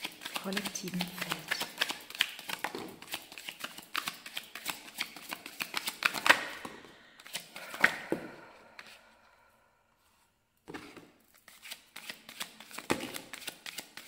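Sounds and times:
cards being shuffled by hand: 0.0s - 8.1s, 10.7s - 14.0s
card slaps: 0.3s - 6.8s.

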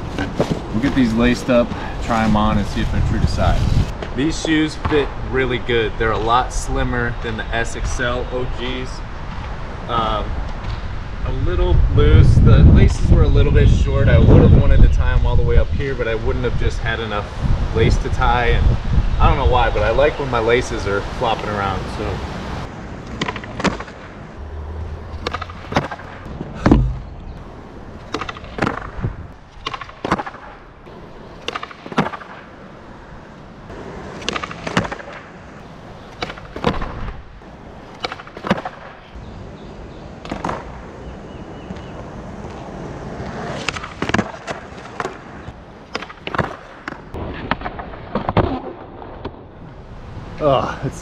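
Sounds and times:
skateboard rolling on hard surface: 0.0s - 4.0s, 33.7s - 38.9s, 40.2s - 47.4s
skateboard landing thumps: 23.1s - 24.1s, 25.2s - 27.2s, 28.1s - 29.0s, 29.6s - 30.6s, 31.4s - 32.4s, 34.0s - 35.3s, 36.1s - 37.2s, 38.0s - 39.0s, 40.2s - 40.7s, 43.6s - 45.3s
skateboard tail pops: 23.1s - 24.1s, 25.2s - 27.1s, 28.1s - 30.6s, 31.4s - 32.5s, 33.7s - 35.3s, 36.1s - 37.2s, 37.9s - 39.0s, 40.2s - 40.8s, 43.2s - 45.3s, 45.9s - 49.4s.

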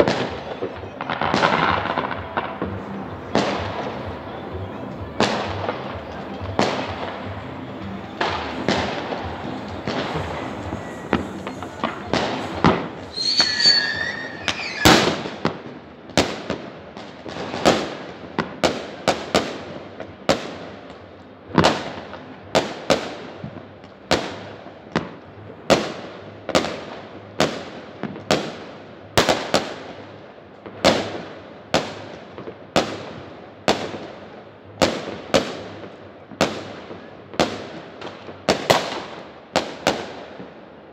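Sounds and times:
fireworks bangs echoing: 0.0s - 40.8s
short whistling glide: 13.0s - 15.0s.

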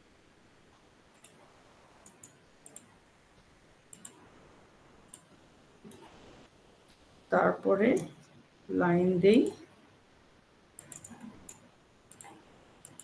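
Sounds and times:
computer mouse clicks: 1.1s - 1.4s, 2.0s - 2.9s, 3.9s - 4.2s, 5.1s - 5.3s, 5.9s - 6.1s, 10.8s - 13.0s.

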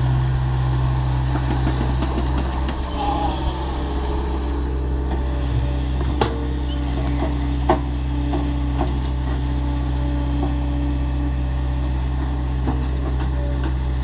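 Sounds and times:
steady whine: 0.0s - 8.5s
excavator diesel engine running: 0.0s - 14.0s.

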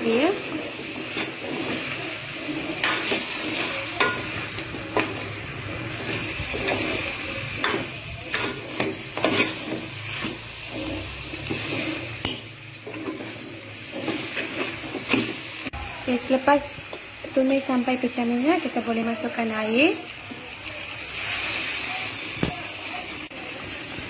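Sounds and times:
metal spoon scraping a pot: 0.0s - 15.5s
frying sizzle: 0.0s - 24.0s.

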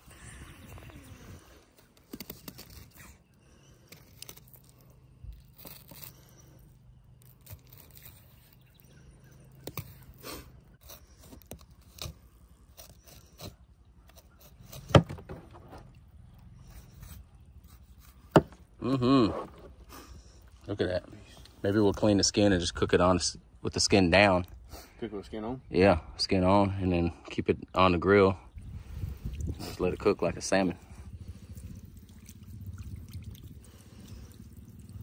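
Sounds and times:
knife scraping through fish: 2.0s - 15.4s, 16.6s - 18.5s.

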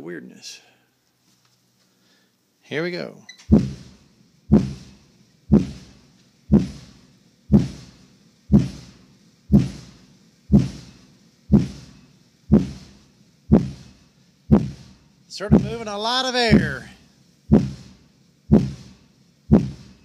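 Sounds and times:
subwoofer bass thumps: 3.5s - 5.9s, 6.5s - 6.9s, 7.5s - 7.9s, 8.5s - 8.9s, 9.5s - 9.9s, 10.5s - 10.9s, 11.5s - 11.9s, 12.5s - 12.9s, 13.5s - 13.9s, 14.5s - 14.9s, 15.5s - 15.8s, 17.5s - 17.9s, 18.5s - 18.9s, 19.5s - 19.9s.

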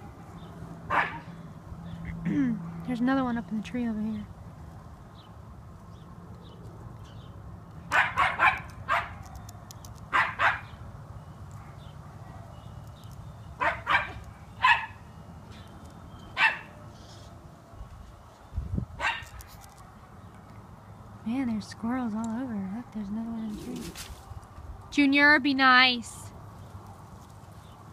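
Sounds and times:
dog barking: 0.9s - 1.3s, 7.9s - 9.2s, 10.1s - 10.8s, 13.6s - 15.0s, 16.4s - 16.8s, 19.0s - 20.0s.

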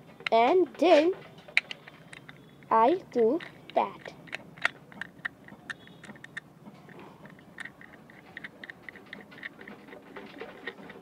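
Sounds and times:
spinning top parts clicking: 1.5s - 6.5s, 7.2s - 11.0s.

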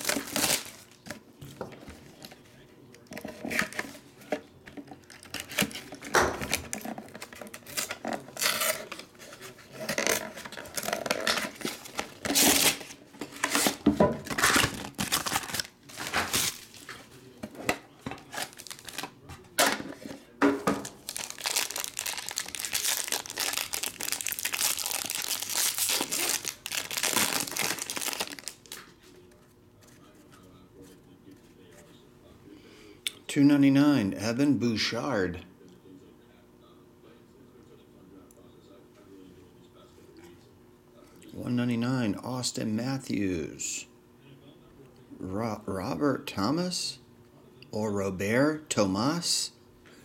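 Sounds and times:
plastic wrapping tearing and crinkling: 0.0s - 1.1s, 5.0s - 17.1s, 18.2s - 19.2s, 20.8s - 28.9s.

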